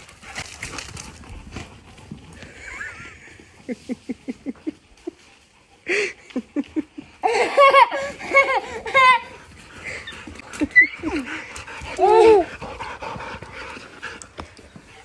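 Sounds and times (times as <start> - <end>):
person laughing: 2.5 - 5.3, 5.9 - 9.4, 10.3 - 11.4.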